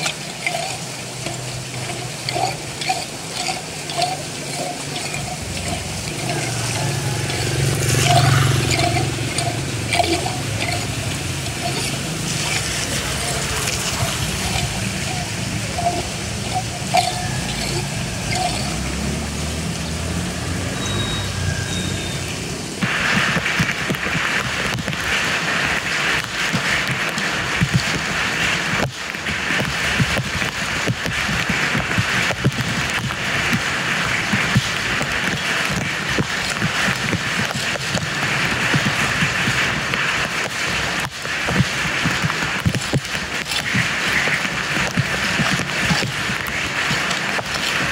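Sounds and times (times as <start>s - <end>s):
floodwater gushing into drain: 0.0s - 47.9s
rain falling on wet paving: 0.0s - 47.9s
low engine-like hum: 5.1s - 13.3s.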